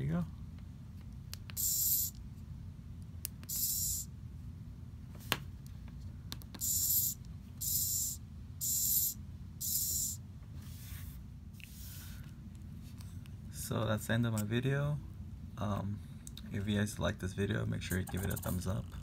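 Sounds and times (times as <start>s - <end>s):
micro servo whirring: 1.6s - 2.2s, 3.5s - 4.0s, 6.6s - 10.2s.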